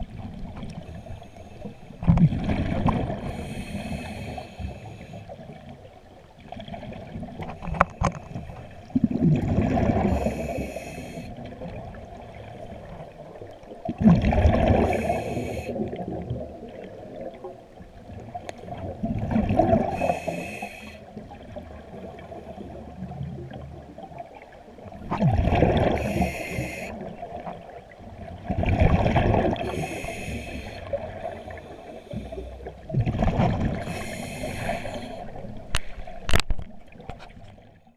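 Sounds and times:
diver inhaling through regulator: 3.2s - 5.3s, 9.9s - 11.4s, 14.6s - 15.9s, 19.8s - 21.1s, 25.8s - 27.1s, 29.6s - 32.7s, 33.8s - 36.2s
bubbling exhalations underwater: 13.9s - 15.1s, 25.0s - 26.3s.

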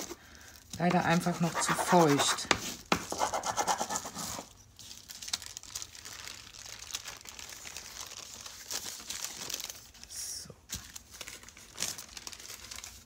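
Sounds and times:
damp paper crinkling: 4.2s - 10.1s, 10.7s - 13.0s.

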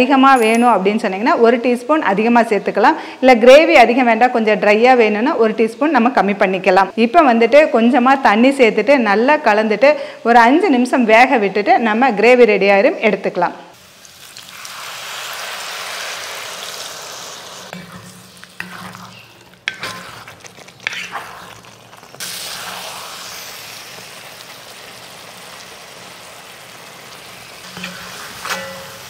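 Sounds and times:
sizzling in a hot pan: 13.8s - 29.0s
wooden spatula scraping pan: 17.7s - 22.2s, 27.7s - 29.0s.

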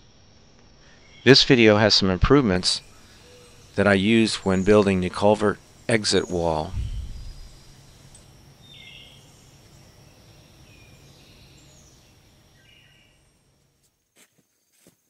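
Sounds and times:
high thin whine: 2.3s - 13.5s
bird chirps: 2.6s - 13.4s.

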